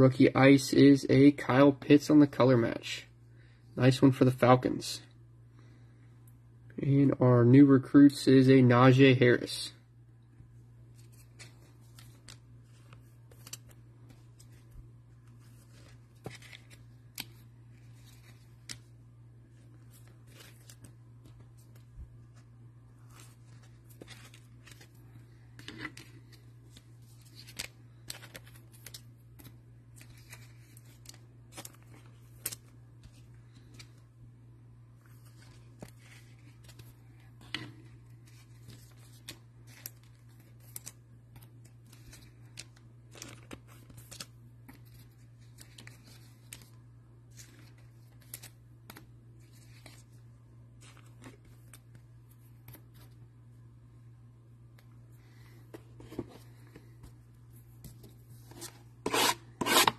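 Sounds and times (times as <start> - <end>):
steady low hum: 0.0 - 59.9
cards clicking and rustling: 11.0 - 18.9, 19.6 - 34.0, 35.1 - 50.2.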